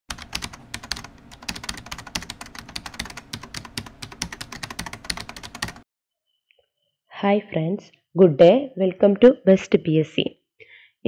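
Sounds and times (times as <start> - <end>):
keyboard typing clicks: 0.1 - 5.8.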